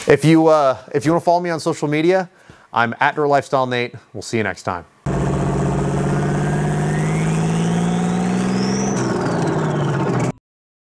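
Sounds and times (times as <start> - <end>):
low drone: 5.1 - 10.3
rising whine: 5.1 - 10.4.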